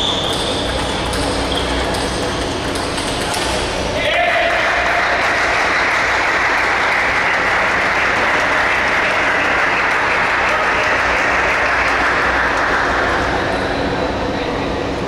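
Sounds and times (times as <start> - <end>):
applause in a large hall: 4.2 - 13.3.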